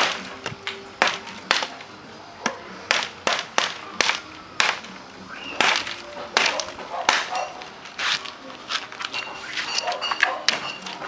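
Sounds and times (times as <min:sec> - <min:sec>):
machete chopping into branches: 0:00.0 - 0:01.8, 0:02.4 - 0:09.0.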